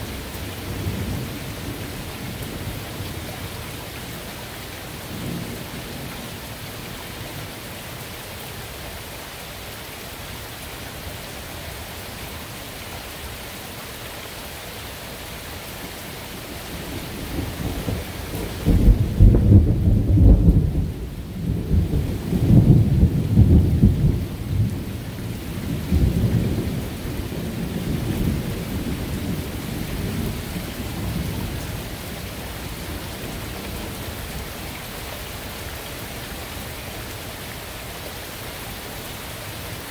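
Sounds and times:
rain hiss: 0:00.0 - 0:39.9
rolling thunder rumble: 0:16.8 - 0:32.0.

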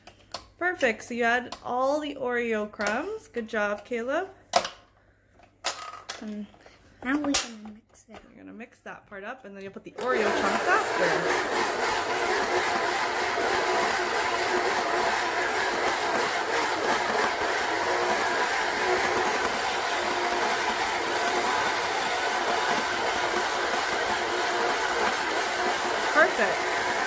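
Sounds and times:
stand mixer churning dough: 0:10.0 - 0:27.0.

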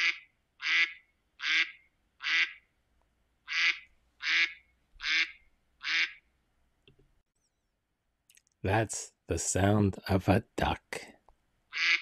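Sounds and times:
duck quacking: 0:00.0 - 0:02.6, 0:03.5 - 0:06.2, 0:11.7 - 0:12.0.

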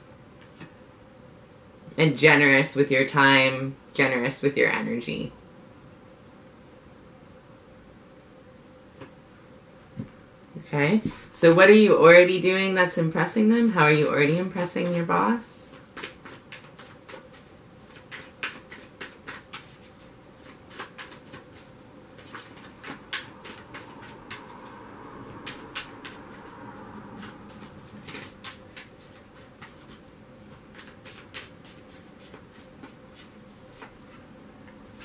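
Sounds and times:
cards rustling: 0:14.0 - 0:34.3
cards snapping and tapping: 0:15.7 - 0:19.8, 0:20.4 - 0:21.6, 0:22.2 - 0:24.6, 0:25.4 - 0:26.4, 0:27.2 - 0:30.0, 0:30.7 - 0:33.0.

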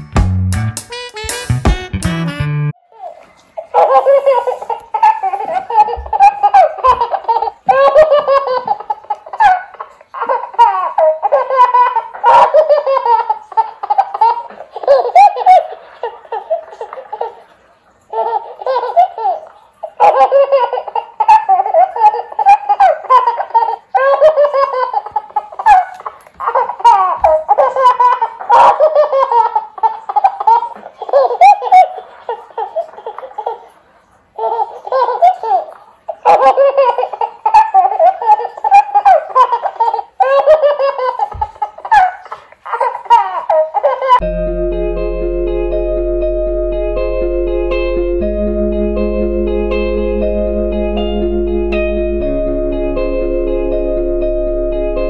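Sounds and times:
toy doll baby laughter: 0:02.9 - 0:17.5, 0:18.1 - 0:33.8, 0:34.4 - 0:44.2.

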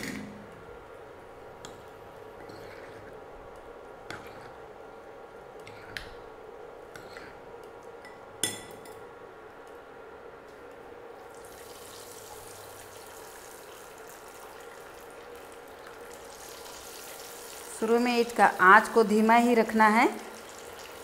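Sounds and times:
corn sizzling in hot oil: 0:11.2 - 0:19.3, 0:20.1 - 0:21.0.

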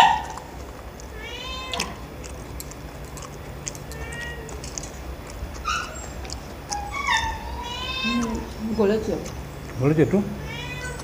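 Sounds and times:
cats meowing: 0:00.0 - 0:08.9, 0:10.2 - 0:11.0.

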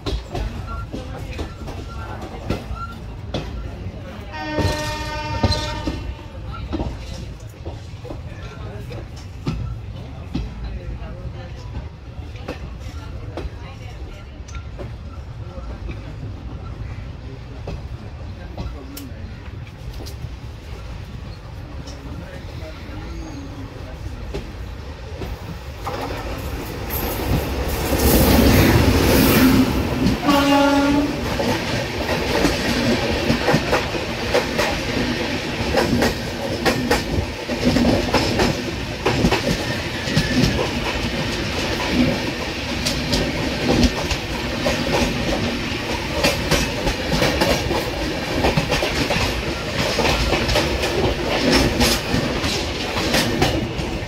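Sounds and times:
train wheels clicking over rail joints: 0:00.0 - 0:03.8, 0:04.4 - 0:10.7, 0:24.0 - 0:54.0
train horn blast: 0:04.3 - 0:06.4, 0:29.4 - 0:31.3
electric locomotive rushing past: 0:25.2 - 0:54.0.

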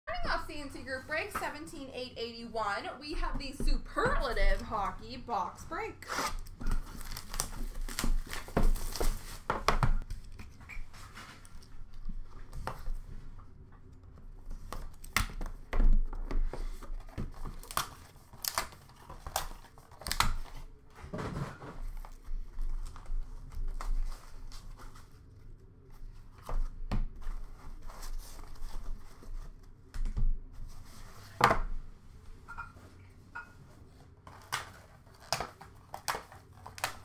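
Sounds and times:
wrapping crinkling and tearing: 0:06.0 - 0:09.5, 0:17.4 - 0:20.7, 0:34.3 - 0:37.0.

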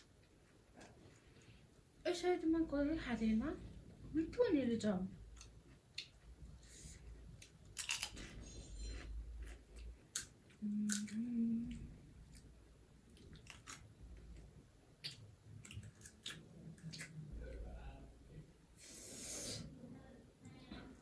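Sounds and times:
crunching and chewing: 0:07.3 - 0:17.4
person humming: 0:10.6 - 0:11.9.

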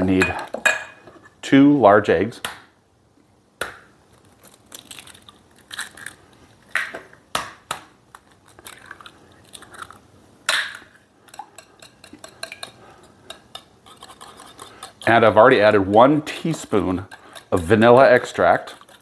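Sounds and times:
eggs cracking on metal bowl: 0:03.6 - 0:19.0
whisk ticking against bowl: 0:11.3 - 0:19.0.

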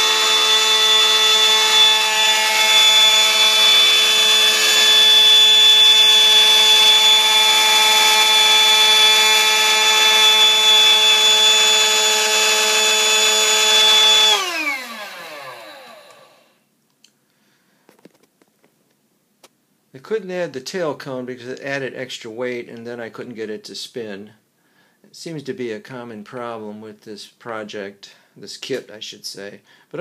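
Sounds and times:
electric motor fan whining: 0:00.0 - 0:16.5.

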